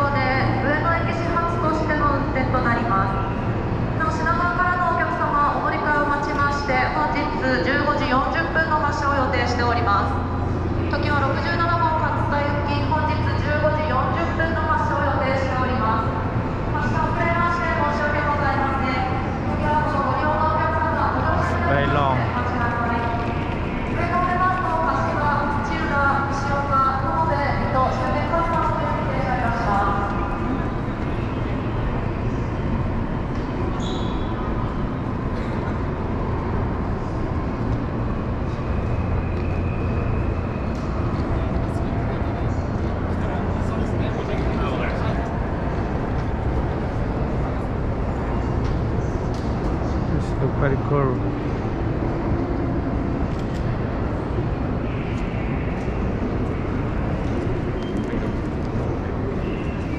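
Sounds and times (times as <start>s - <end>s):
train platform rumble and hum: 0.0s - 59.9s.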